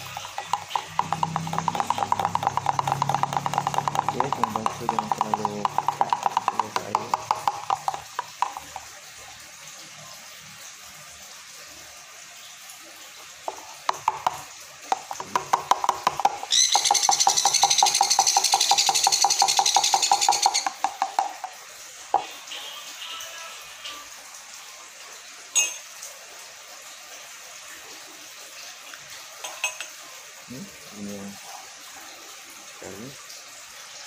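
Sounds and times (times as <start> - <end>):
spoon clicking in plastic container: 0.1 - 8.9.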